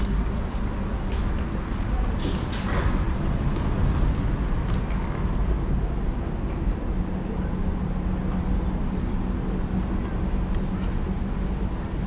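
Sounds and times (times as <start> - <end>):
steady hum: 0.0 - 12.0
train low rumble: 0.0 - 12.0.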